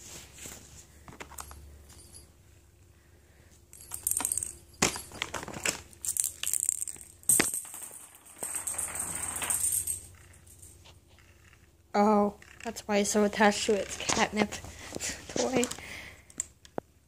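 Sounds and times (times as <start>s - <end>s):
cat toy jingling and rattling: 3.7s - 10.8s.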